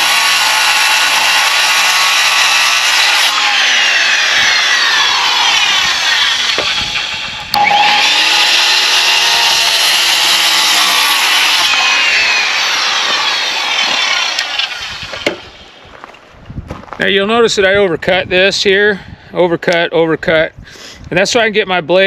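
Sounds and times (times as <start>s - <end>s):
circular saw cutting wood: 0.0s - 16.1s.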